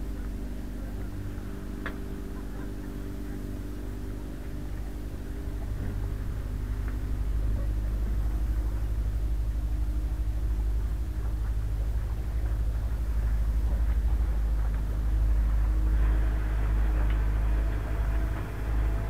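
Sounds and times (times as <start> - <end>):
boat engine running: 0.0 - 19.0.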